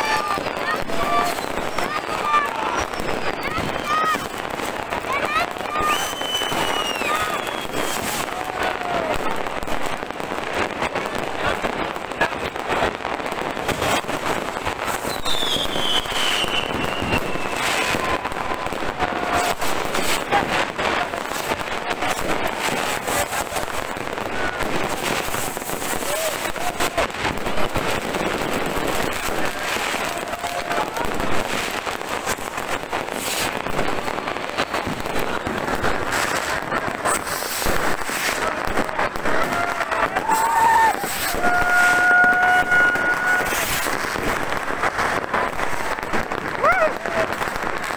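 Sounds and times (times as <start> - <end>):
fireworks crackling and banging: 0.0 - 47.9
long falling whistle: 5.9 - 8.2, 15.1 - 18.6, 40.3 - 43.5.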